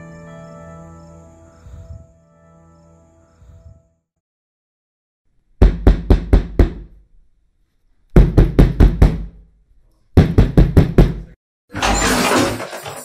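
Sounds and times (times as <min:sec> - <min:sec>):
knocking on wooden door: 0:05.6 - 0:06.9, 0:08.2 - 0:09.3, 0:10.2 - 0:11.2.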